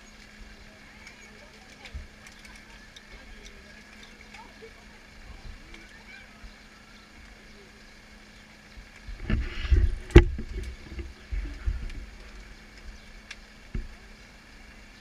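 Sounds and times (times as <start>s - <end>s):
rumbling and knocking on microphone: 9.2s - 12.1s.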